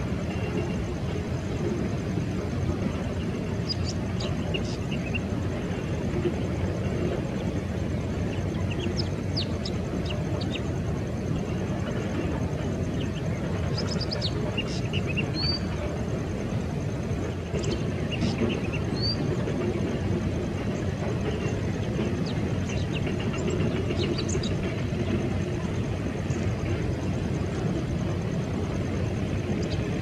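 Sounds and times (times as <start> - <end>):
distant jet engines rumbling: 0.0 - 30.0
small birds chirping: 2.4 - 16.6, 17.2 - 26.8, 29.0 - 30.0.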